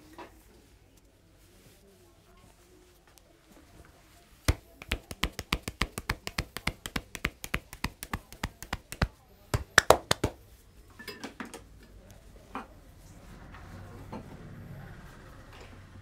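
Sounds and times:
rhythmic hand slaps on skin: 4.5 - 10.4.

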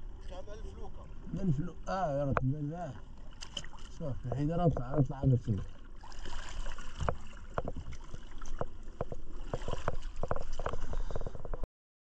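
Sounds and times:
water splashing: 0.0 - 11.6
low rumble of water: 0.0 - 11.7
wind: 0.0 - 11.7
knocks against boat hull: 7.0 - 8.0.

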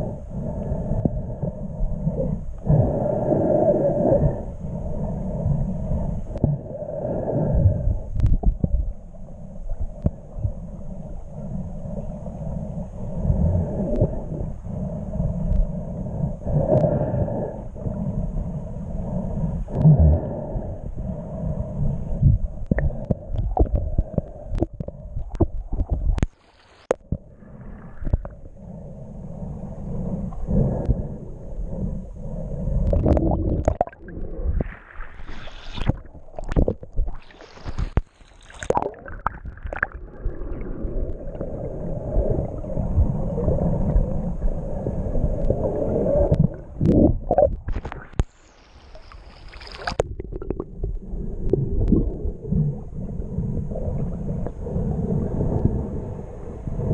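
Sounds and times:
muffled underwater rumble: 0.0 - 56.9
splashing: 48.8 - 50.4.

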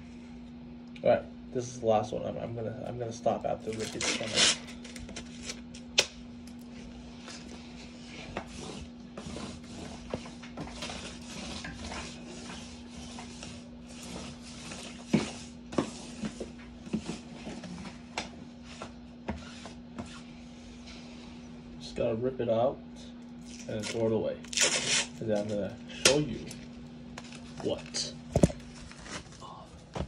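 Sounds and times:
lint roller rubbing on carpet: 7.0 - 18.0.

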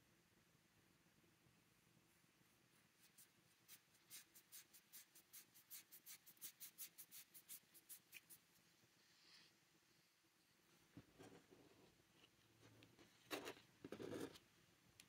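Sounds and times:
paintbrush strokes on paper: 2.5 - 9.5.

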